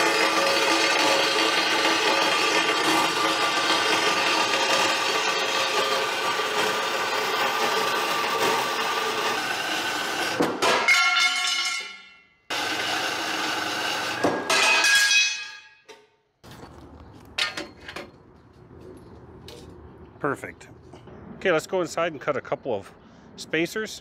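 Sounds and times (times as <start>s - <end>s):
bandsaw cutting metal: 0.0s - 15.5s.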